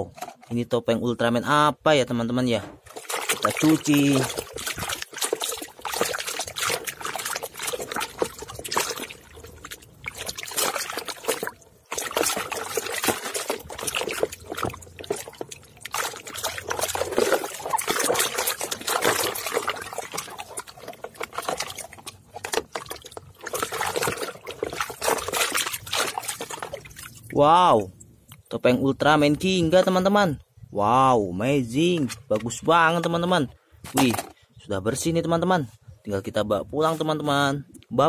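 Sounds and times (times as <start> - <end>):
muddy water sloshing in a tub: 0.0 - 30.4
hand scrubbing plastic mask: 2.6 - 27.2.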